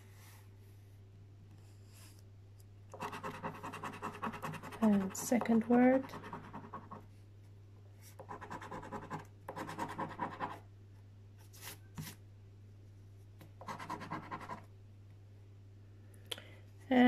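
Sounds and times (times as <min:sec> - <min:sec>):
coin scratching scratchcard: 0:03.0 - 0:07.0.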